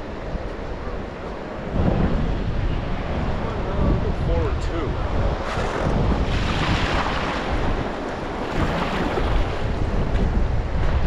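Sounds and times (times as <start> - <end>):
wind buffeting microphone: 0.0 - 11.0
river water rushing: 5.1 - 9.9.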